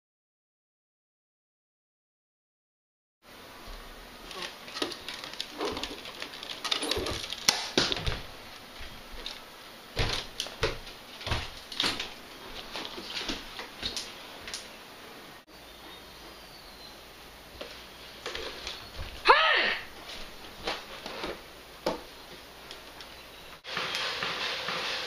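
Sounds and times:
footsteps: 0:03.6 - 0:14.7, 0:17.5 - 0:19.3, 0:19.9 - 0:25.0
rustling: 0:03.6 - 0:14.7.

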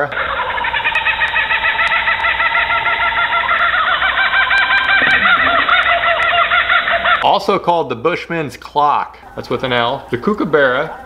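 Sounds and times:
kookaburras laughing: 0:00.2 - 0:07.2.

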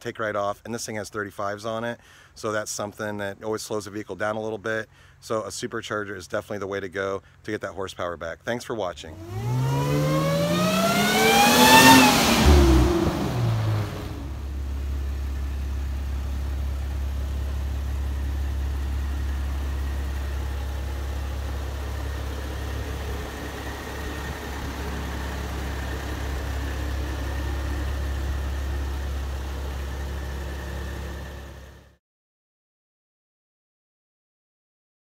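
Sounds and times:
car engine passing by: 0:09.2 - 0:14.8, 0:19.3 - 0:31.8
engine idling: 0:09.2 - 0:32.0.

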